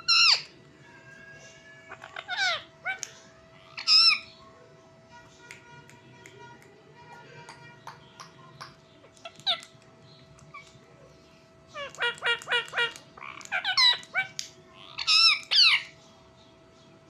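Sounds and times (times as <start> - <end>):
parakeet chirps: 0.0 - 0.5, 1.9 - 4.4, 11.7 - 16.0
parakeet squawking: 0.0 - 0.5, 1.8 - 4.4, 8.6 - 9.7, 11.7 - 16.0.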